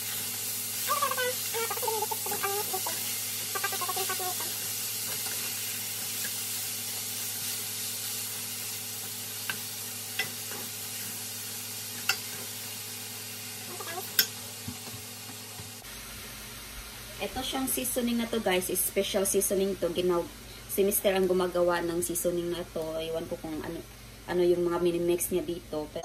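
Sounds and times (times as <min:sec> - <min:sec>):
meat sizzling in a frying pan: 0:00.0 - 0:18.6.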